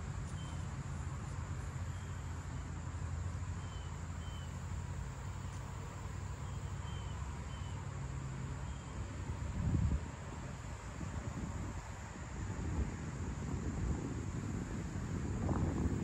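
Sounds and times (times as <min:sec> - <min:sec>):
faint bird chirps: 0:03.6 - 0:04.6.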